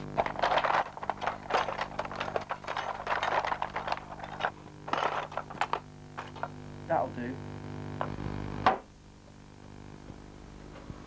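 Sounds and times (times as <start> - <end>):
metal tools clinking in toolbox: 0.2 - 6.5.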